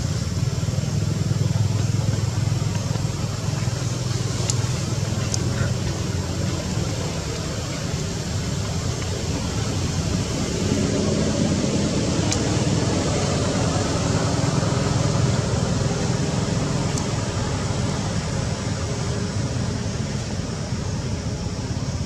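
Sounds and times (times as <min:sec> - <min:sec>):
low outdoor rumble: 0:00.0 - 0:22.0
faint high ticks: 0:01.6 - 0:09.3.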